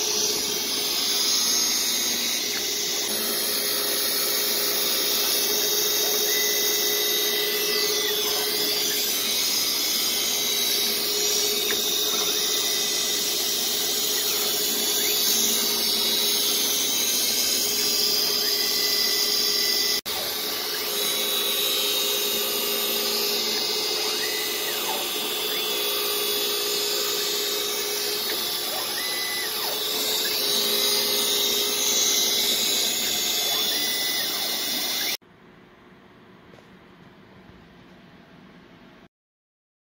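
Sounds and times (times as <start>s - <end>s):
grinding wheel hissing on steel: 0.0s - 35.2s
spindle whine: 0.0s - 35.2s.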